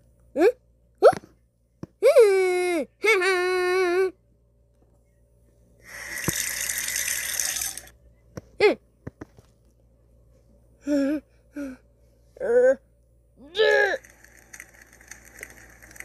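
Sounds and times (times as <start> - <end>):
water running from sink tap: 6.2 - 7.9.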